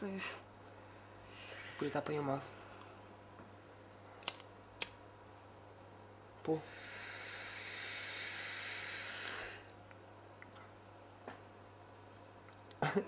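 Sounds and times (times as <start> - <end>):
long hissing inhale: 0.9 - 3.0, 6.5 - 9.8
lighter clicks: 4.2 - 5.0.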